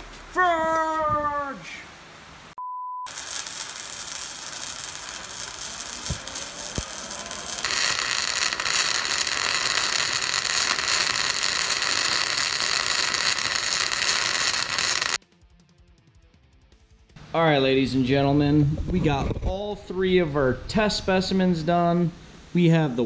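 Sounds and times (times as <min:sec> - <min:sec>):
welding arc crackling: 0:03.1 - 0:15.2.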